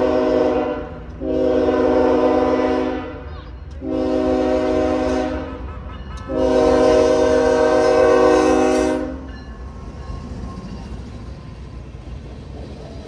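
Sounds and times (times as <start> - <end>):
locomotive air horn blasts: 0.0 - 9.3
locomotive rumbling past: 0.0 - 13.0.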